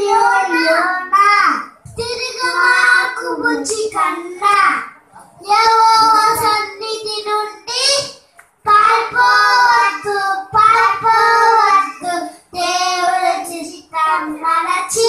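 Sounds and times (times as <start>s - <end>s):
boys singing: 0.0s - 4.0s, 5.5s - 15.0s.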